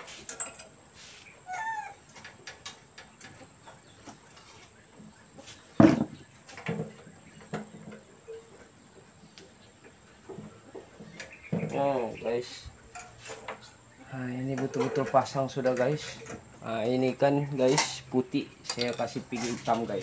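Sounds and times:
clicks and knocks of tools: 0.0 - 0.8, 12.9 - 13.7, 14.5 - 16.5, 17.6 - 19.9.

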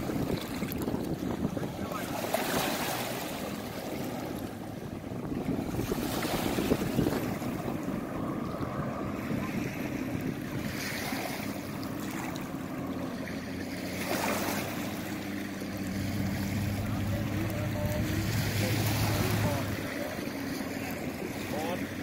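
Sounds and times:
wind on microphone: 0.0 - 12.5
jet ski engine running: 0.0 - 22.0
water noise: 0.0 - 22.0.

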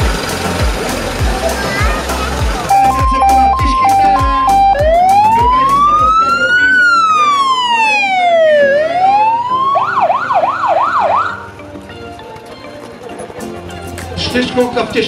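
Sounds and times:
electronic siren wailing and yelping: 2.7 - 11.5.

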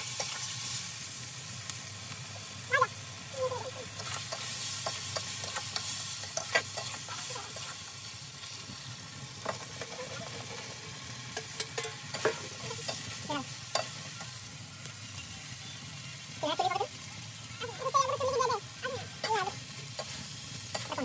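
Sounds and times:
food sizzling: 0.0 - 21.0
spatula scraping steel wok: 3.9 - 7.9, 9.4 - 14.4.

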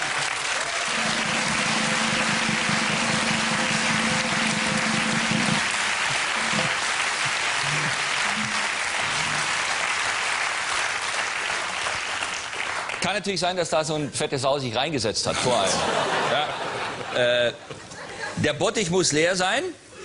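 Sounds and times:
audience applauding: 0.0 - 13.1.

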